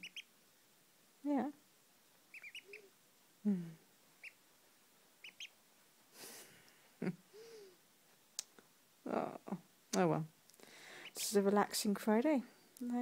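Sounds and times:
duckling peeping: 0.0 - 0.4, 2.2 - 3.0, 4.2 - 4.4, 5.2 - 5.6
rustle: 0.0 - 13.0
soft low murmurs: 3.4 - 3.9.

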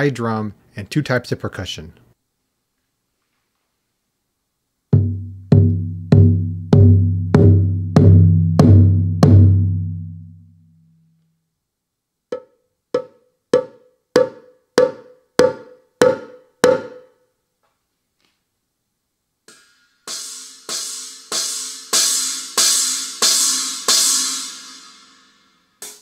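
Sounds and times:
higher knock-like drum hits: 5.0 - 9.8
deep electronic drum hits: 5.0 - 10.2.

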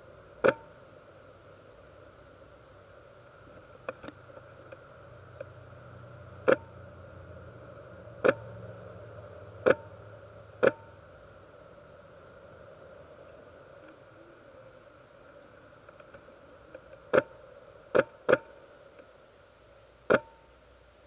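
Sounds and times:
low steady hum: 0.0 - 21.0
faint clicks: 3.2 - 5.6, 13.2 - 14.2, 15.2 - 19.1.

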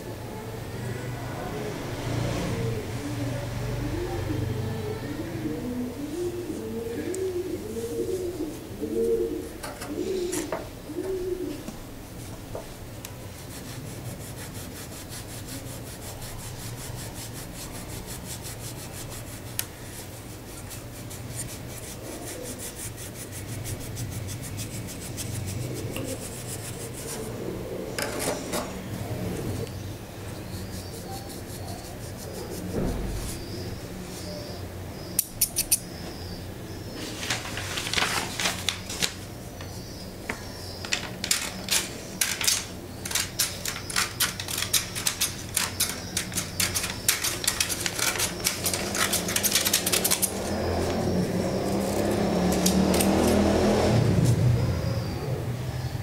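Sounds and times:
dove cooing: 2.4 - 11.8, 25.5 - 29.7
sharp metal clicks: 35.2 - 35.9, 40.9 - 51.0.

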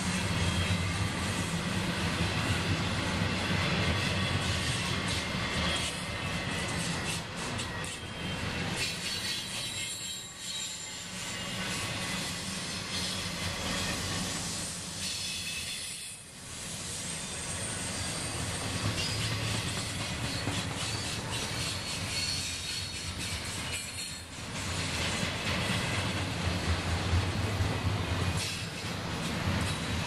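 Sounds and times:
train wheels rumbling on rail: 0.0 - 30.0
high-pitched wheel squeal: 7.8 - 14.0.

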